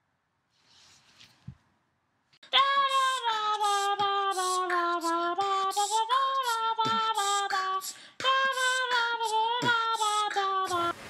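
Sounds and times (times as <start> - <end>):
woman singing unaccompanied: 2.4 - 11.0.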